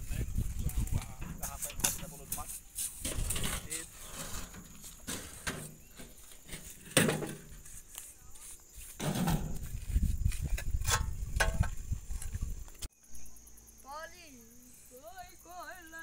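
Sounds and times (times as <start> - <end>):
wind rumbling on microphone: 0.0 - 4.8, 8.8 - 12.9.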